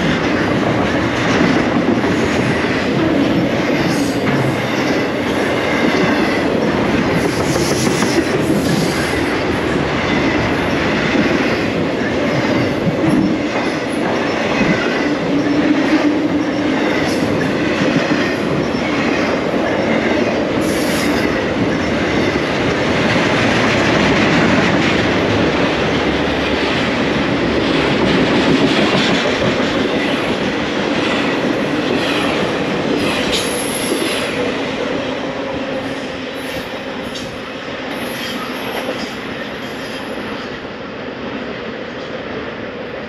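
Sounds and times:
freight train rolling past: 0:00.0 - 0:43.0.

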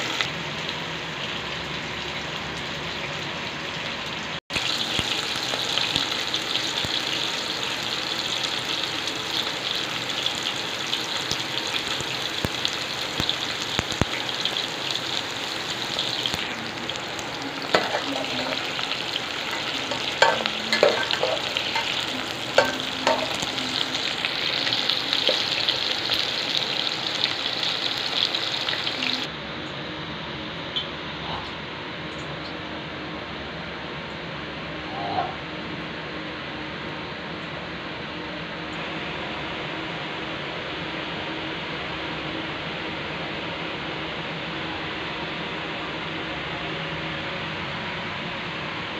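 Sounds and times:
okra sizzling in oil: 0:00.0 - 0:29.3.

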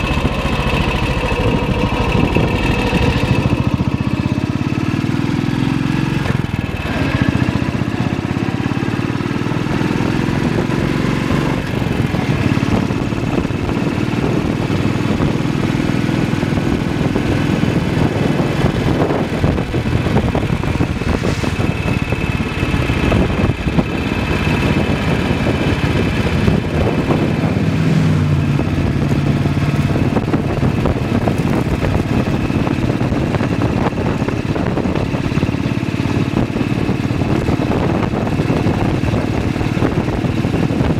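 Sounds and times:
motorcycle engine running: 0:00.0 - 0:40.9
wind rushing: 0:16.4 - 0:40.9
tyre noise on wet road: 0:16.8 - 0:40.9.

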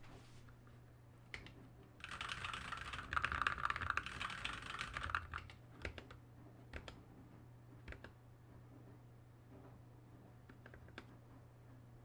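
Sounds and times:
fast mechanical keyboard typing: 0:01.4 - 0:07.0, 0:07.8 - 0:08.2.

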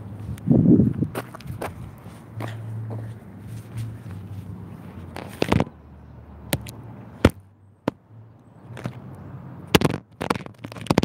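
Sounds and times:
board and rider hitting ground: 0:09.8 - 0:11.0.

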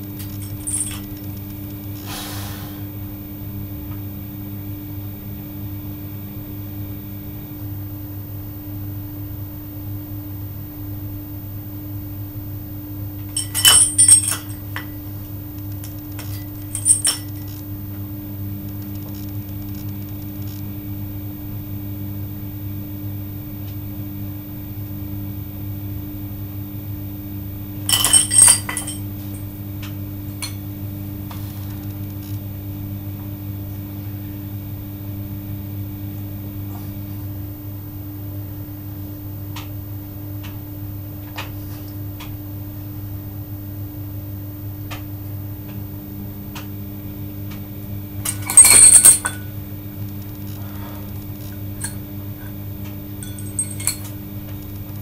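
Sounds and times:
steady low hum: 0:00.0 - 0:55.0
iron weight plates clinking: 0:13.4 - 0:14.5, 0:27.9 - 0:29.0.

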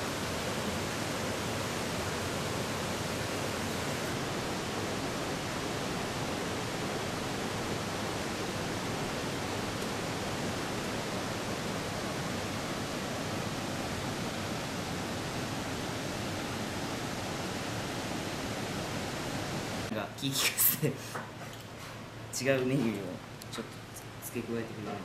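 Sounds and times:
river rushing over rocks: 0:00.0 - 0:19.9.

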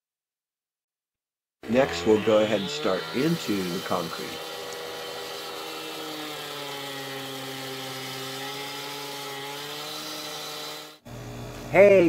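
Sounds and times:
cut-off saw cutting concrete: 0:01.6 - 0:11.0.

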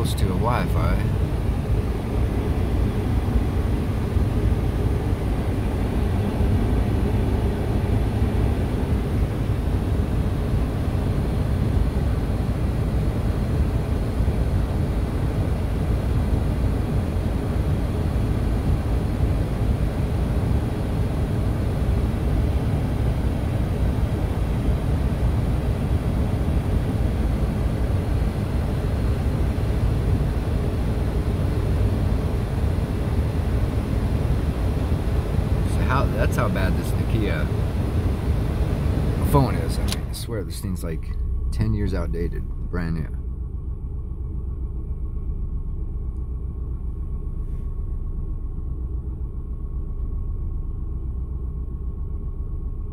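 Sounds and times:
vehicle engine idling: 0:00.0 - 0:52.9.

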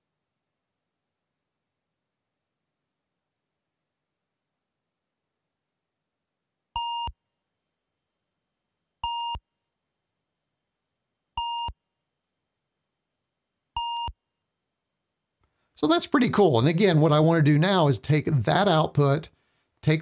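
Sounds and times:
short buzzy electronic beeps: 0:06.8 - 0:07.2, 0:09.0 - 0:09.7, 0:11.4 - 0:12.0, 0:13.8 - 0:14.4.

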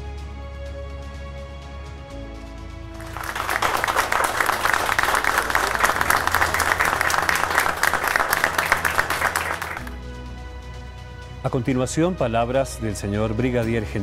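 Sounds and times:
background music: 0:00.0 - 0:14.0
people applauding: 0:03.0 - 0:10.0.

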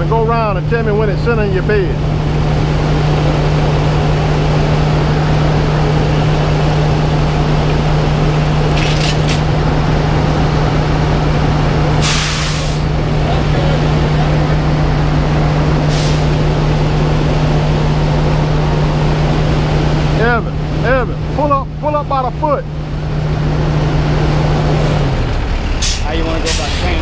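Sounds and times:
diesel truck engine running: 0:00.0 - 0:27.0
air hissing: 0:12.0 - 0:12.9.

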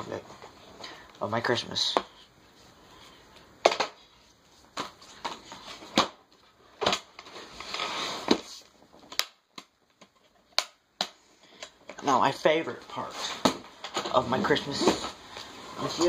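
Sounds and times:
boxes rubbing or sliding: 0:07.2 - 0:08.6, 0:14.2 - 0:16.0.

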